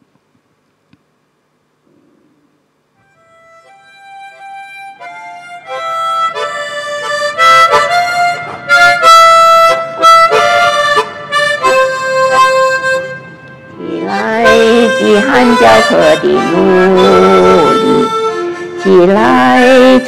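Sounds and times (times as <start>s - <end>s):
slow instrumental melody with chords: 3.0s - 19.6s.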